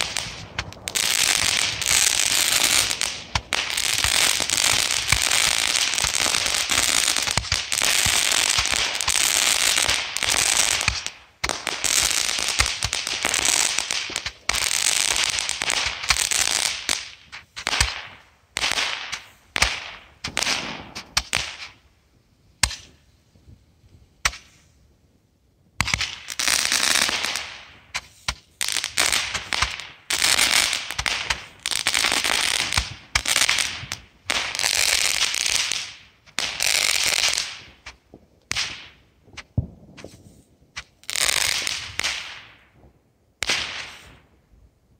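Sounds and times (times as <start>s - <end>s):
fireworks bangs: 0.0s - 21.8s, 25.8s - 44.4s
fireworks crackling and hissing: 0.0s - 44.9s.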